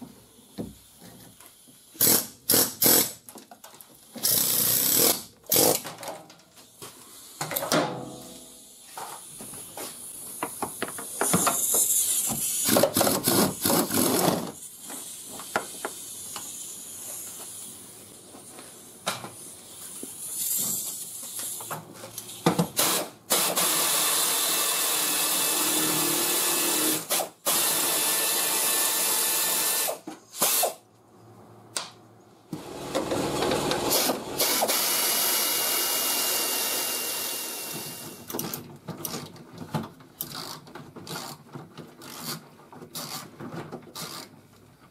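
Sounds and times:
air ratchet hissing: 1.9s - 3.2s, 11.0s - 17.9s, 19.4s - 21.6s.

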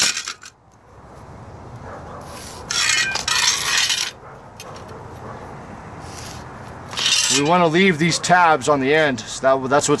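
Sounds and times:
metal square scraping on concrete: 0.0s - 0.6s, 2.2s - 4.9s, 6.0s - 7.8s.

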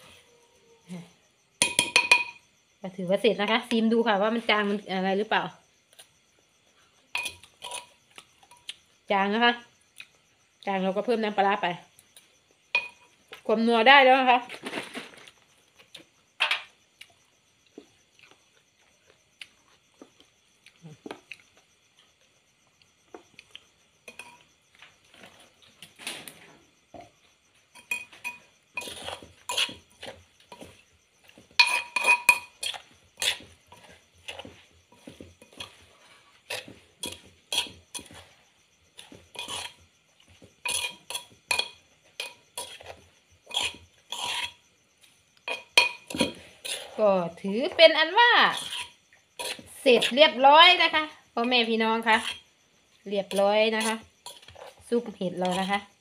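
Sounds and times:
metal spoon clinking in a mortar: 1.6s - 2.4s, 7.1s - 7.9s, 12.7s - 13.1s, 27.8s - 29.8s, 31.6s - 33.4s, 40.6s - 42.9s, 45.4s - 46.8s.

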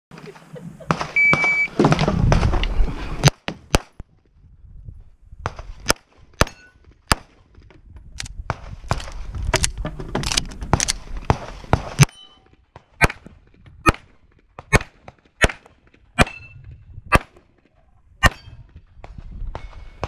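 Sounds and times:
metallic ring of steel targets: 6.4s - 6.8s, 12.0s - 12.5s, 18.2s - 18.7s
pistol shots: 13.9s - 16.5s.

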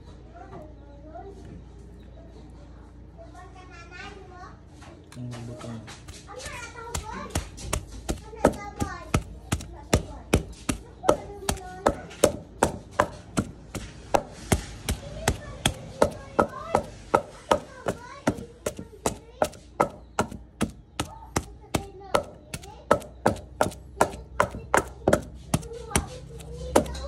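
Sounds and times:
wooden pestle pounding in mortar: 5.9s - 27.0s.

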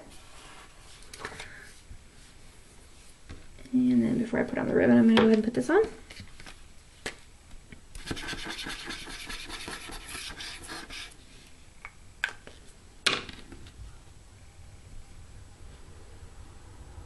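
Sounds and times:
pen tip scratching paper: 8.0s - 11.1s.

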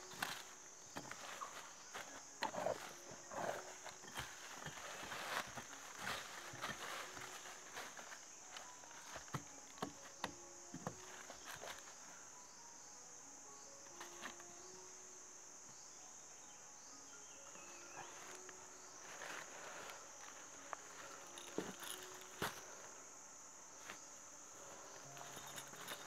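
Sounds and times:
knocks and rustles from hand work: 0.0s - 11.9s
insects droning: 0.0s - 26.0s.

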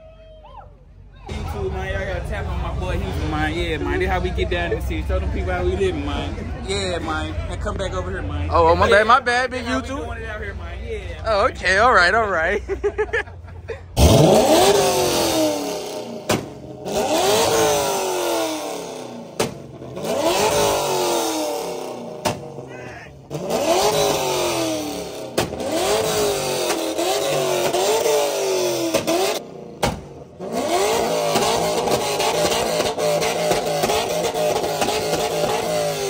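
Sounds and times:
car exhaust revving: 13.9s - 36.0s.

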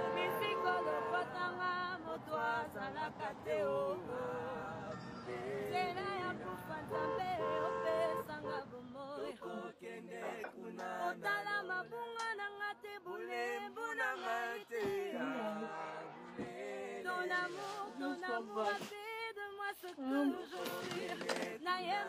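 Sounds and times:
person singing: 19.9s - 22.0s.

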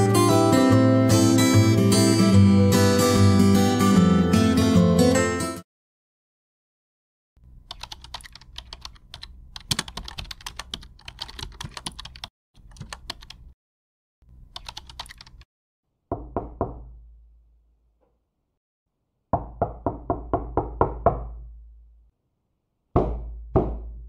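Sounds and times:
rapid typing on laptop keyboard: 7.7s - 13.6s, 14.5s - 15.5s
heavy knocks on wooden door: 16.1s - 17.0s, 19.4s - 21.5s, 23.0s - 24.0s.

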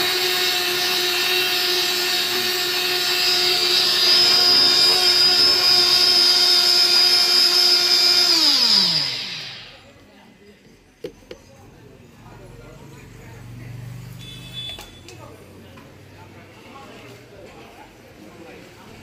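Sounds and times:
blender motor running: 0.0s - 10.0s.

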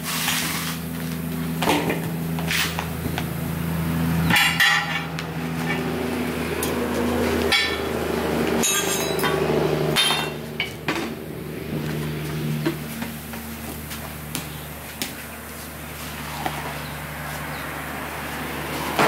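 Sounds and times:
steady low hum: 0.0s - 19.0s
metallic knocks and clinks: 8.6s - 9.4s.

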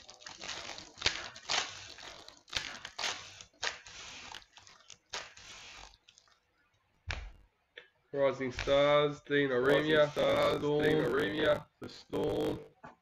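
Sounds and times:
foil wrappers and cards crinkling: 0.0s - 6.4s, 9.7s - 11.6s.

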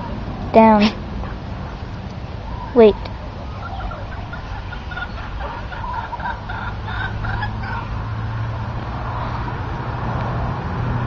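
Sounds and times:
chickens clucking: 0.0s - 8.2s.

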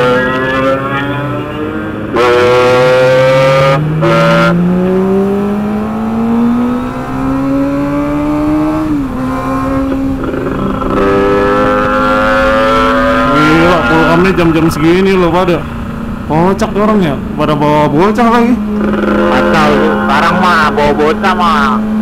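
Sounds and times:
motorcycle engine accelerating: 0.0s - 22.0s
loud rush of noise: 9.1s - 22.0s.

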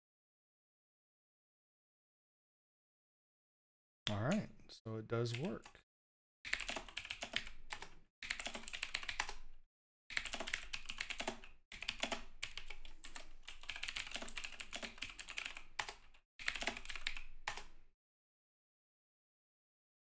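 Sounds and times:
mechanical keyboard typing: 5.3s - 5.8s, 6.5s - 9.5s, 10.1s - 17.8s.

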